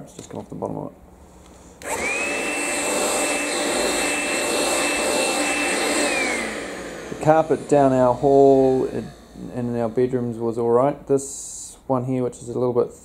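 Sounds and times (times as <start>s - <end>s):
vacuum cleaner motor whine: 1.8s - 10.9s.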